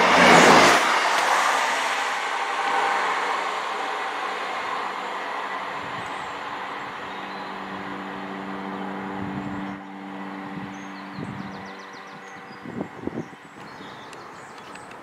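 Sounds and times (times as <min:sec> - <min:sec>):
diesel train engine hum: 0:00.0 - 0:15.0
train wheels rumbling on rails: 0:00.0 - 0:15.0.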